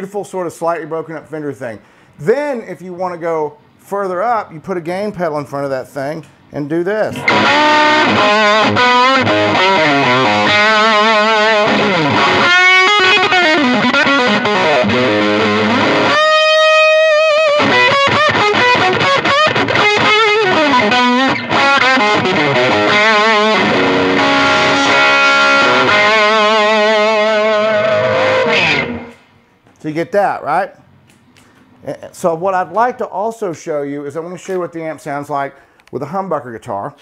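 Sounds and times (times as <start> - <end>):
overdriven electric guitar lead: 7.2 - 29.3.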